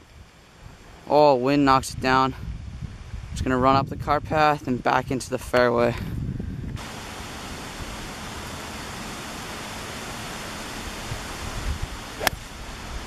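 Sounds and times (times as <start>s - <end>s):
steady outdoor hiss: 0.0s - 13.0s
golf club striking ball: 12.1s - 12.5s.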